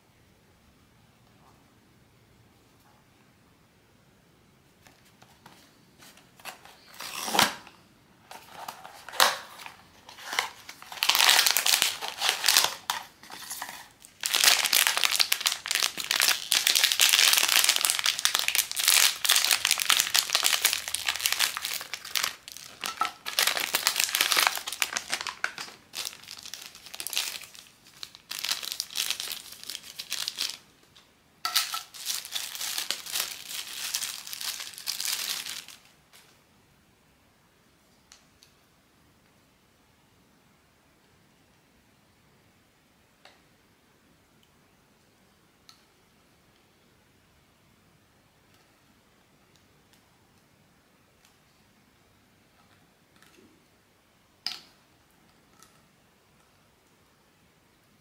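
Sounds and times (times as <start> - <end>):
packaging crinkling: 8.3 - 30.6, 31.5 - 36.0.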